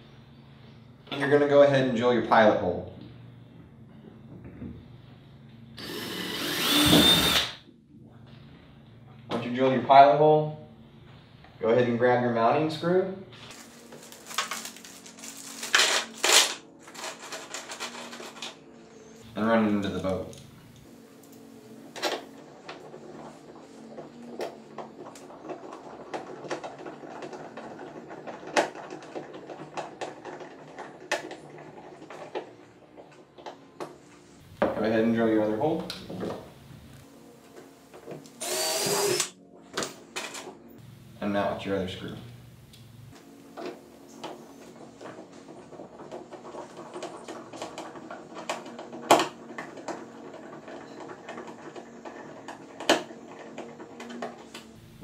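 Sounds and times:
low steady hum: 34.1 - 45.2.

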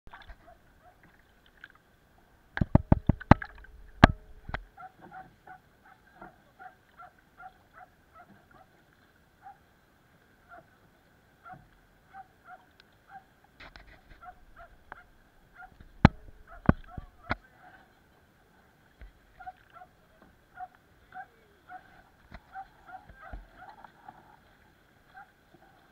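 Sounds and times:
hollow knocks on plastic kayak: 2.6 - 4.6.

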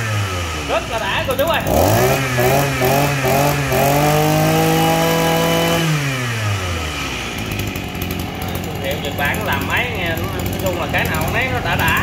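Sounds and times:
brush cutter engine revving: 0.0 - 12.0.

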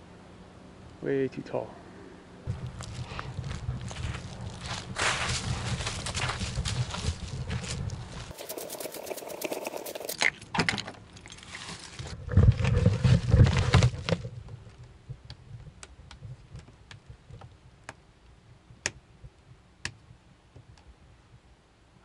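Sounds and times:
footsteps on dry leaves: 2.5 - 10.1.

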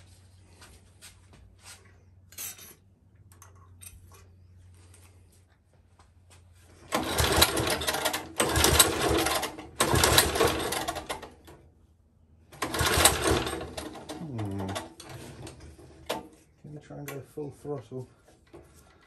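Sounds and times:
engine being pull-started: 6.8 - 11.6, 12.5 - 16.3.

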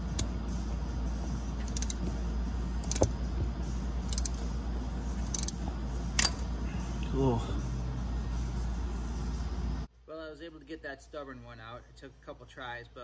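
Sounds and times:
steady low hum: 0.0 - 10.0.

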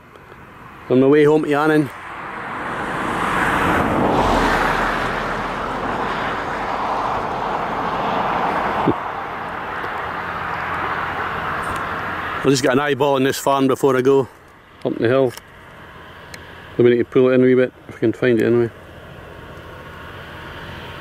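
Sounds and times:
vehicle passing close by: 1.6 - 13.0.

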